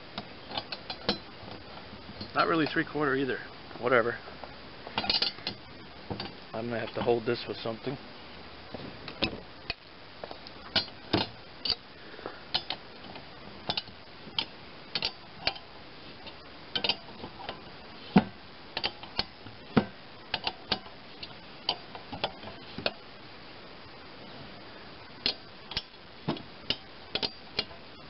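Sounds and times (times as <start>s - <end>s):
wrenches clicking on metal: 5.0s - 5.6s, 12.5s - 15.7s, 16.8s - 17.6s, 26.7s - 27.8s.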